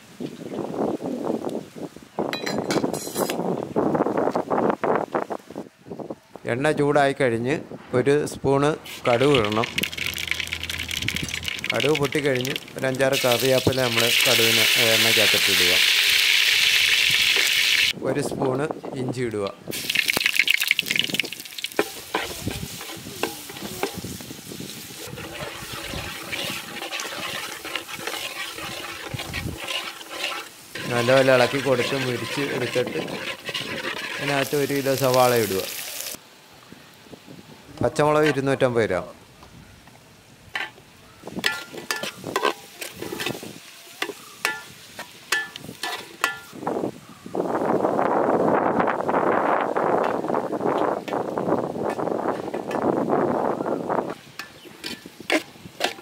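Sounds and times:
wind on microphone: 0.0 - 6.4, 7.6 - 12.1, 16.8 - 29.7, 46.5 - 55.8
ladle knocking and scraping pot: 8.9 - 14.3, 21.7 - 24.1, 25.1 - 35.2, 41.4 - 43.4, 45.3 - 46.5
oil sizzling in a pot: 8.9 - 18.0, 19.7 - 36.2, 41.6 - 46.5.

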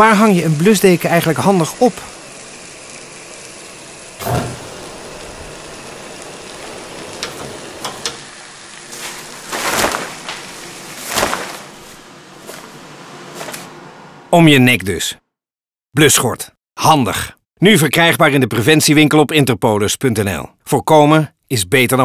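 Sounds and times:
pan fire hissing and crackling: 0.0 - 13.7
flame whooshing: 4.1 - 13.7
thump: 4.2 - 4.7.

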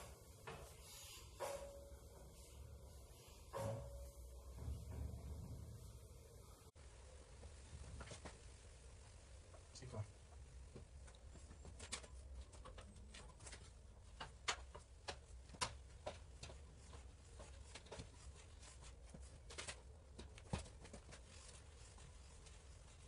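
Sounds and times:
low steady hum: 0.0 - 14.2.

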